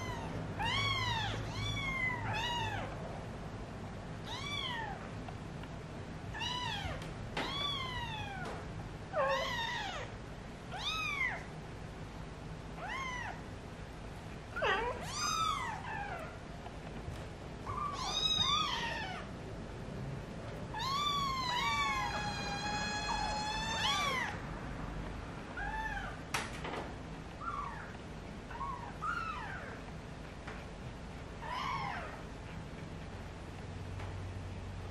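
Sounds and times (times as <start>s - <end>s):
kittens mewing: 17.6s - 19.3s, 20.7s - 24.4s, 27.4s - 29.8s, 31.4s - 32.4s.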